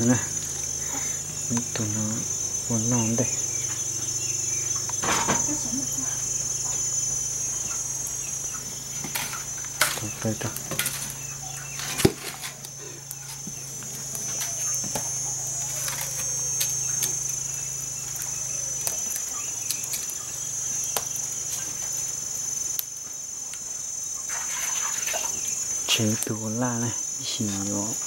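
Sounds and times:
low steady hum: 0.0s - 26.6s
insects chirring: 0.0s - 28.0s.

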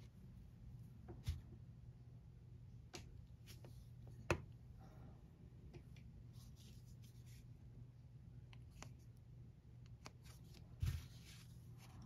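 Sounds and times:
faint low hum: 0.0s - 12.0s.

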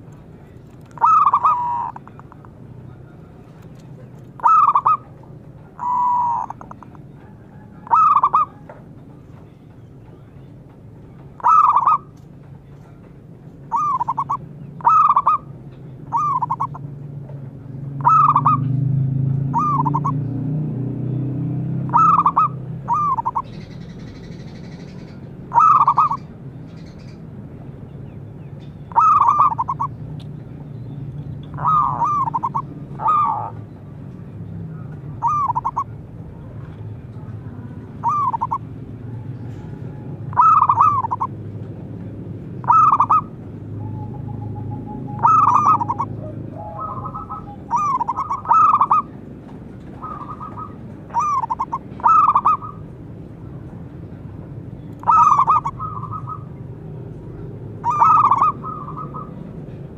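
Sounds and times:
dove cooing: 0.9s - 2.6s, 4.3s - 8.8s, 11.4s - 12.2s, 13.7s - 15.5s, 16.1s - 16.9s, 18.0s - 20.2s, 21.8s - 23.8s, 24.6s - 26.3s, 28.9s - 30.0s, 31.5s - 33.6s, 34.7s - 36.6s, 37.2s - 41.4s, 42.6s - 49.2s, 49.8s - 52.9s, 55.0s - 56.6s, 57.8s - 59.5s.

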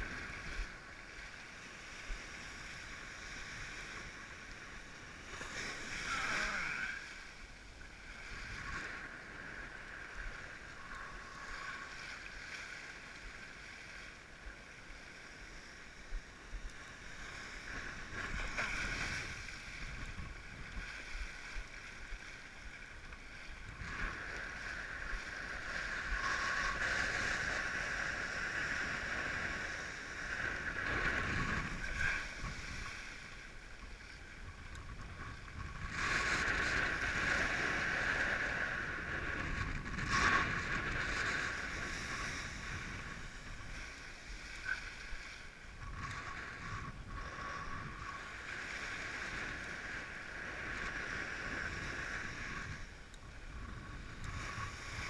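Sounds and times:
water rushing and splashing: 0.0s - 34.5s
wind on microphone: 16.0s - 55.0s.

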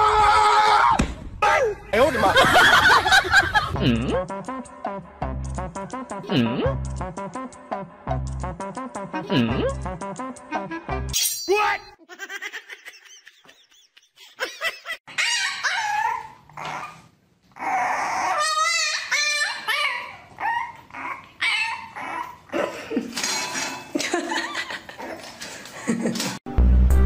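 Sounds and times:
puppy whining and yipping: 15.1s - 22.5s.

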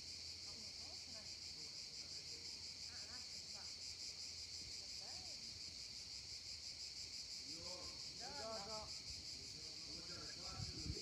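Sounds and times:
cicadas buzzing: 0.0s - 11.0s
faint distant voices: 7.3s - 11.0s.

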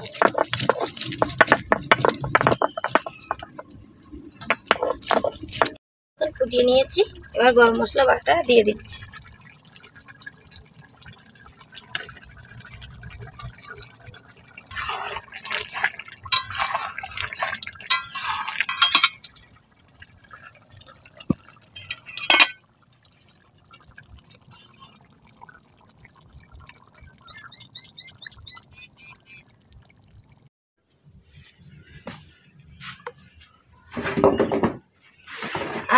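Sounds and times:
wet sloppy stirring: 0.0s - 5.8s, 7.0s - 30.4s
metal spoon scraping steel bowl: 16.3s - 19.5s.

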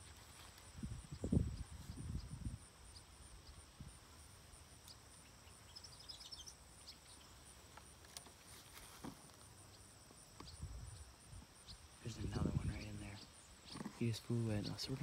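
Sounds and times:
faint bird chirps: 4.8s - 7.5s, 9.6s - 15.0s.

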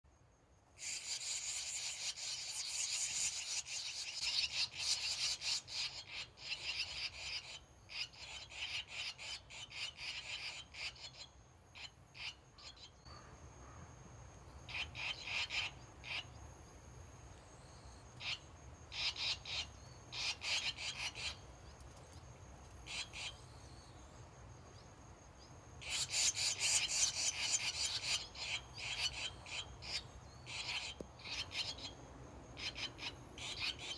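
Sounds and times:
swallow nestlings calling: 0.8s - 13.0s, 14.7s - 16.3s, 18.2s - 21.4s, 22.9s - 23.9s, 25.8s - 33.9s.

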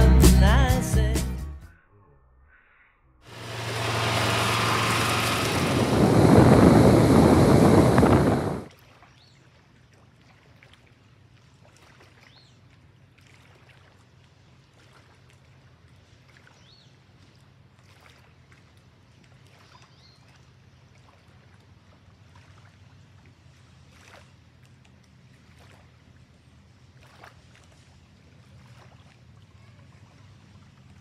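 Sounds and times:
loud rushing crackling noise: 3.3s - 8.7s
low hum: 3.3s - 8.7s.

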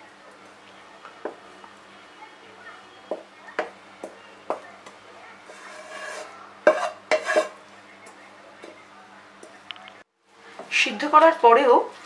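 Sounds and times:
metal utensil scraping a pan: 5.4s - 7.6s.

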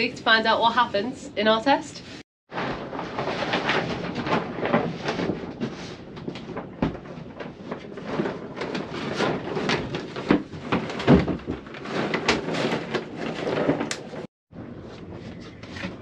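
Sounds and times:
knocks and bumps in wooden boat: 2.5s - 14.0s.

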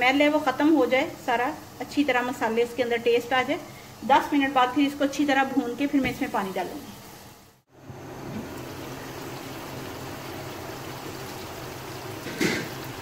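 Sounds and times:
food bubbling and sizzling in a wok: 6.4s - 13.0s.

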